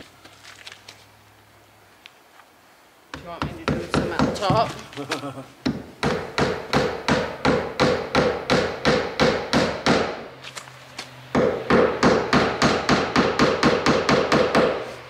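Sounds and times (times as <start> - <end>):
hammer driving nails: 5.6 - 10.2, 11.3 - 14.9.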